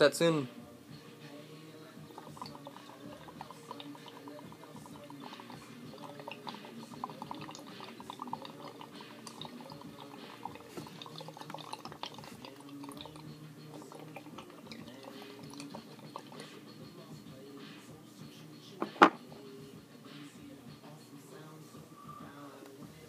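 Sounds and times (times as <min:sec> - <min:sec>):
water bubbling in a pipe: 0:02.0 - 0:16.8.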